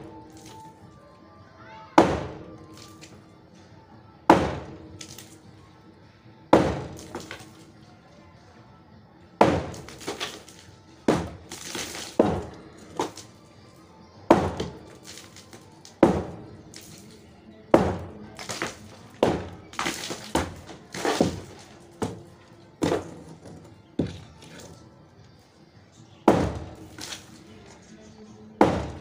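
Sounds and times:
hammer striking concrete: 0:02.0 - 0:02.9, 0:04.3 - 0:05.4, 0:06.5 - 0:07.6, 0:09.4 - 0:13.3, 0:14.3 - 0:24.7, 0:26.3 - 0:27.5, 0:28.6 - 0:29.0
breaking concrete rattling: 0:06.6 - 0:07.7, 0:09.4 - 0:13.4, 0:14.3 - 0:24.8, 0:26.3 - 0:27.8.

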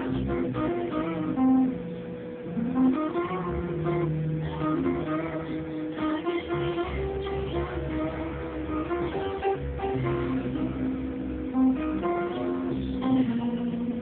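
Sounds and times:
acoustic guitar melody: 0:00.0 - 0:14.0.

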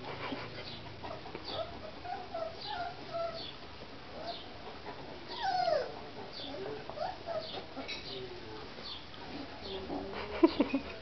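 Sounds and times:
puppy whimpering: 0:01.1 - 0:03.6, 0:05.3 - 0:08.0.

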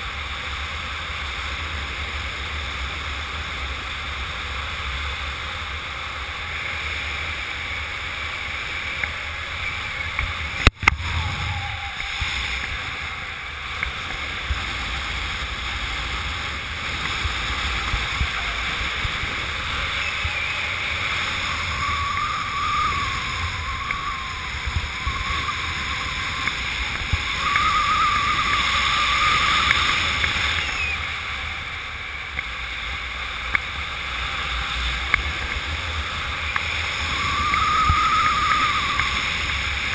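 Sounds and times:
wind rushing over microphone: 0:09.4 - 0:32.4, 0:34.0 - 0:39.9
faint wavering whistle: 0:10.8 - 0:13.6, 0:19.5 - 0:31.8, 0:36.4 - 0:39.9.

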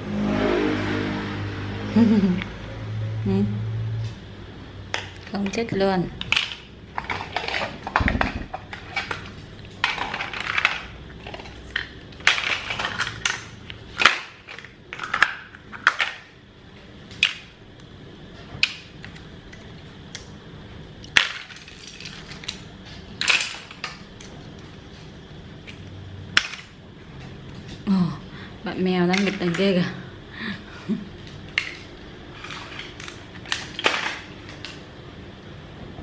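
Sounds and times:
plastic toys clicking and knocking: 0:04.9 - 0:16.4, 0:18.6 - 0:20.3, 0:21.0 - 0:24.6, 0:26.4 - 0:26.8, 0:29.0 - 0:30.0, 0:31.2 - 0:34.8.

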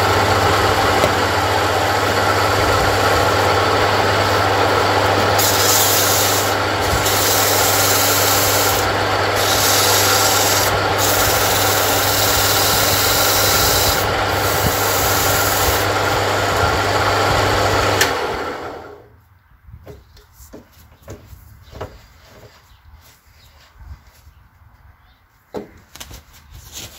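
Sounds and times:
lathe motor humming: 0:00.0 - 0:19.0
lathe spinning down: 0:00.0 - 0:19.0.

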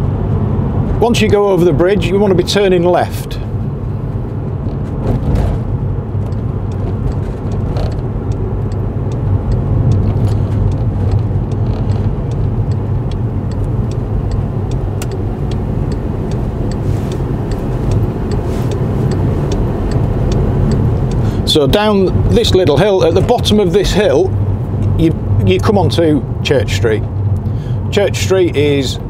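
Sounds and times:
car engine and road rumble: 0:00.0 - 0:29.0
turn indicator ticking: 0:05.8 - 0:26.0.

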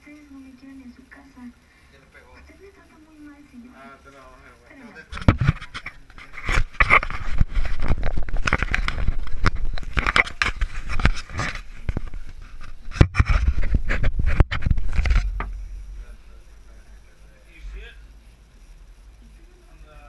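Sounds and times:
camera handling noise: 0:05.1 - 0:15.4.

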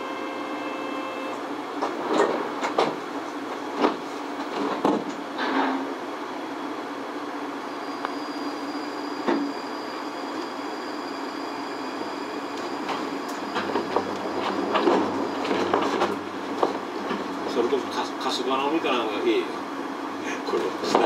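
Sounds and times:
thin high whine: 0:07.6 - 0:15.6.

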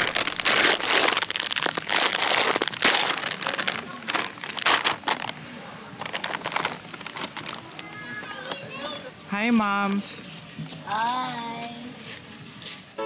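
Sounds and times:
chip bag crinkling and tearing: 0:00.0 - 0:08.6.

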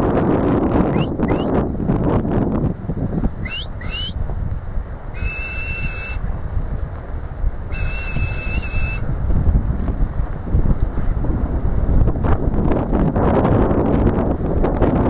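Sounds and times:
wind rumbling on microphone: 0:00.0 - 0:15.0
person whistling commands: 0:00.9 - 0:01.5, 0:03.5 - 0:04.2, 0:05.2 - 0:06.2, 0:07.7 - 0:09.0.

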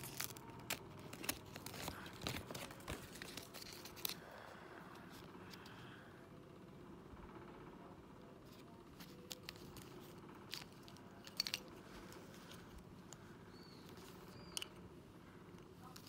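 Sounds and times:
plastic toy pieces clicking: 0:09.0 - 0:11.8, 0:13.8 - 0:14.8.

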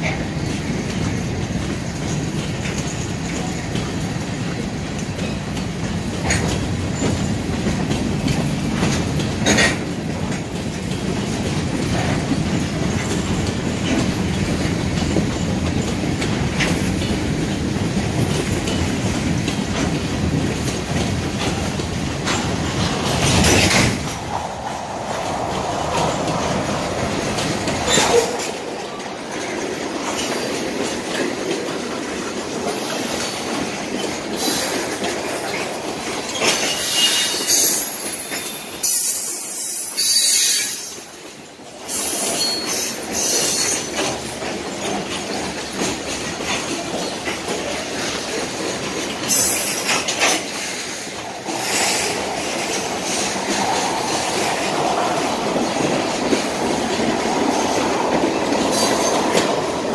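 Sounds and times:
freight train wheels rumbling on rail: 0:00.0 - 0:59.9
wheels clickety-clack: 0:00.0 - 0:59.9.

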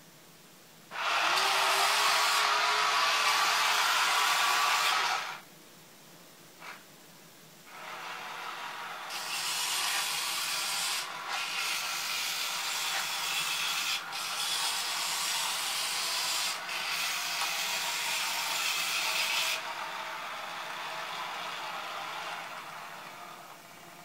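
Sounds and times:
toy tank motors whirring: 0:09.1 - 0:19.8.

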